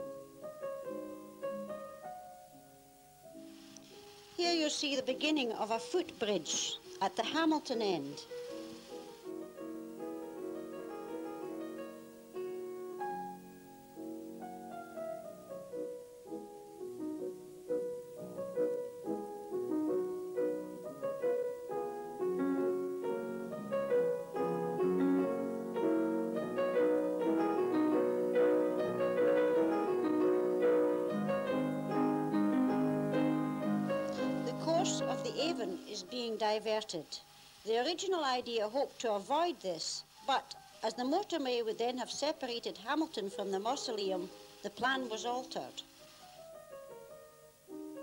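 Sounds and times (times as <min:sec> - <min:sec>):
piano music: 0:00.0 - 0:37.1, 0:42.4 - 0:48.0.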